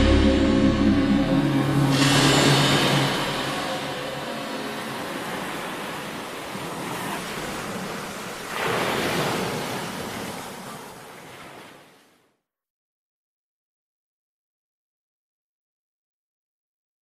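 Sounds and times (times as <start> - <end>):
ocean waves rushing: 0.0 - 12.2.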